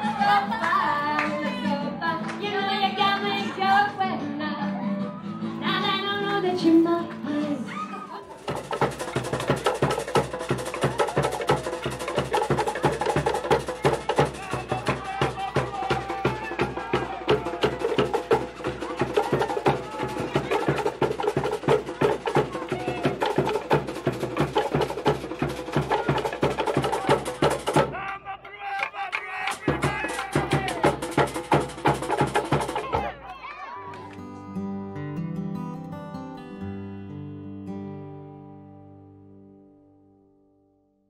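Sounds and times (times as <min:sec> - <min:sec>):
wooden slit drums clattering: 0:08.3 - 0:14.3.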